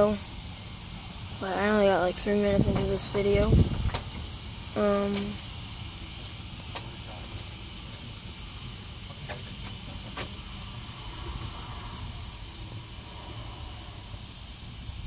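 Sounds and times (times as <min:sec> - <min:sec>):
background hiss: 0:00.0 - 0:15.0
low rumble: 0:10.4 - 0:15.0.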